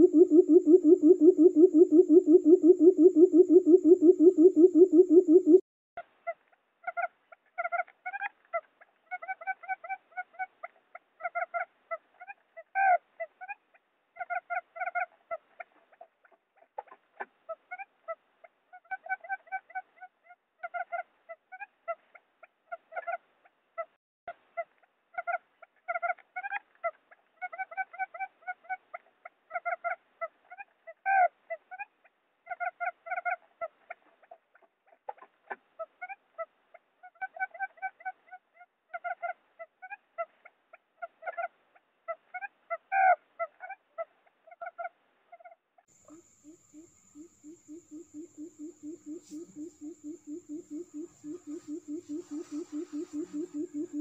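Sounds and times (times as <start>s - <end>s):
quail calling: 0.0s - 5.6s, 45.4s - 54.0s
quail chirping calls: 0.0s - 5.6s, 25.2s - 31.9s, 32.5s - 40.3s, 42.1s - 54.0s.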